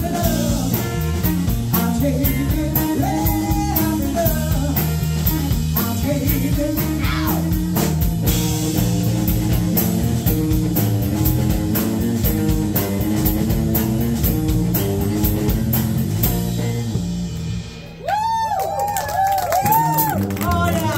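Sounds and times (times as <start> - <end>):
person singing: 0.0 - 7.8
drum kit beat: 0.0 - 20.9
electric guitars: 0.0 - 20.9.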